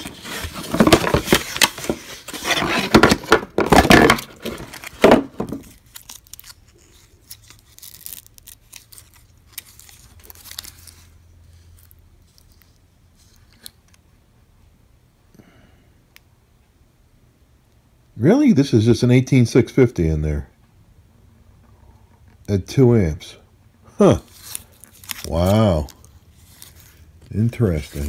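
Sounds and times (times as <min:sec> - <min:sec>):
cardboard and plastic rustling: 0:00.0 - 0:13.7, 0:24.2 - 0:28.0.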